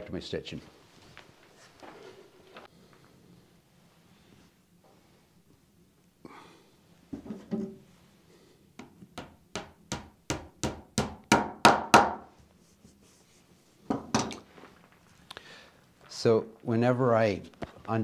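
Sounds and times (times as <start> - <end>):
hammer tapping tacks into wood: 8.8 - 12.3
soft handling of leather: 12.3 - 13.8.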